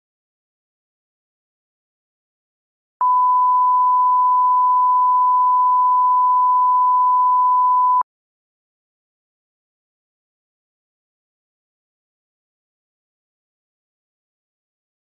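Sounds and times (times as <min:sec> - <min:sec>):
pure test tone: 0:03.0 - 0:08.0.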